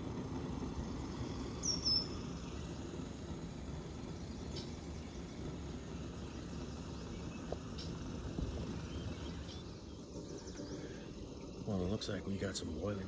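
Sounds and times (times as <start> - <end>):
camp stove burner running: 0.0 - 13.0
water coming to the boil: 0.0 - 13.0
faint bird chirps: 0.8 - 2.8, 4.0 - 12.1.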